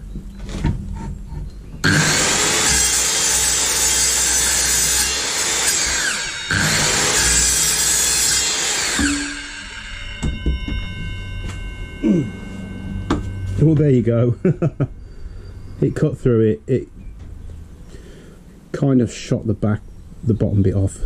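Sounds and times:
circular saw cutting pipe: 0:01.8 - 0:16.2.

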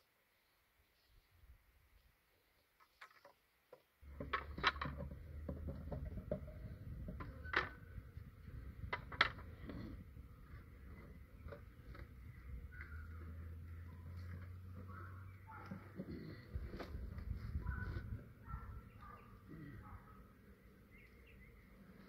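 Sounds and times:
wooden frames clacking: 0:02.9 - 0:18.5.

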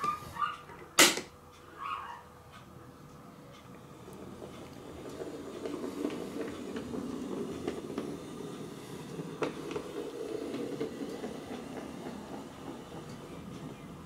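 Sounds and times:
wheels clicking on rails: 0:00.0 - 0:14.0
model train motor hum: 0:03.8 - 0:14.0.

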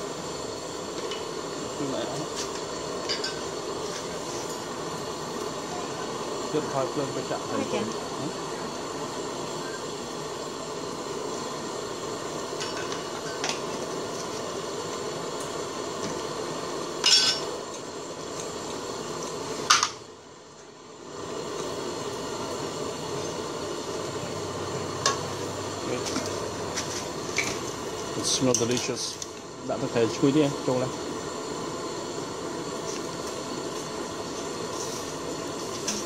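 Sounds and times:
curry simmering hiss: 0:00.0 - 0:36.0
utensils clinking on metal pot: 0:17.0 - 0:17.5.

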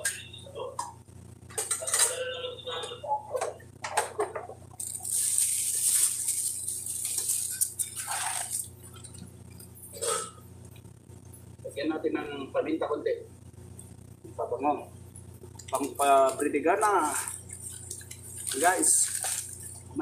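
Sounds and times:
steady hiss: 0:04.8 - 0:08.9.

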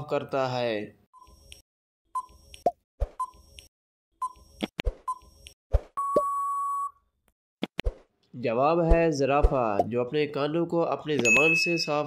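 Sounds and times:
held electronic beep: 0:06.0 - 0:07.0.

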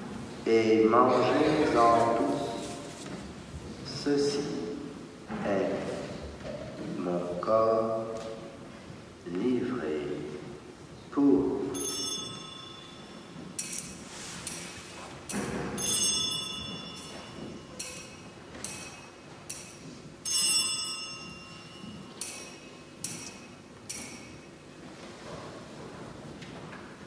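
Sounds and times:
small bells ringing: 0:11.8 - 0:13.8, 0:15.8 - 0:24.6
sharp metallic clinks: 0:11.8 - 0:14.6, 0:15.3 - 0:24.6.

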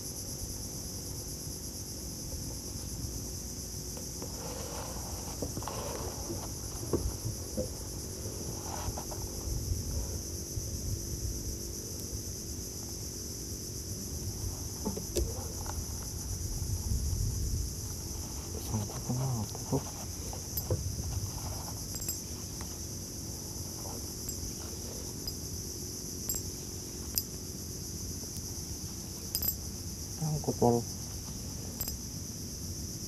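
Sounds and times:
insects chorus: 0:00.0 - 0:33.0
fishing tackle knocks and clicks: 0:29.4 - 0:29.6.

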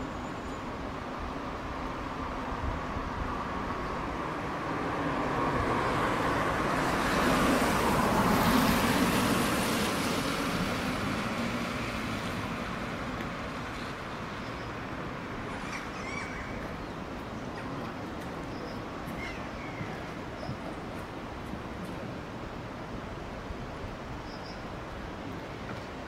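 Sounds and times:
vehicle passing on road: 0:04.2 - 0:16.7.

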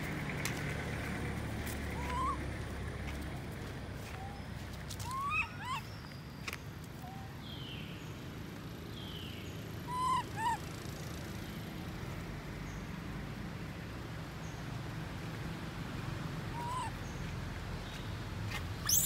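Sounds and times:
baby monkey crying: 0:02.0 - 0:02.4, 0:05.1 - 0:05.8, 0:09.9 - 0:10.6, 0:16.5 - 0:17.0.

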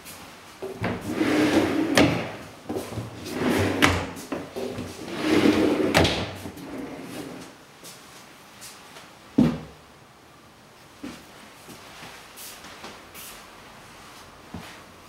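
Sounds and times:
wooden doors sliding: 0:00.6 - 0:07.6.

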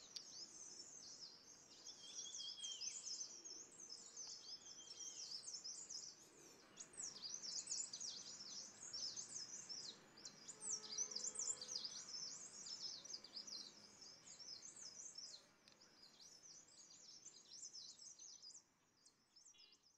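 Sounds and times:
small birds twittering: 0:00.0 - 0:19.9.

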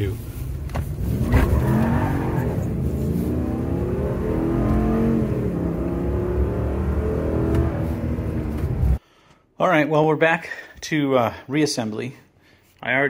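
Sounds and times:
engine accelerating at full throttle: 0:00.9 - 0:09.0.

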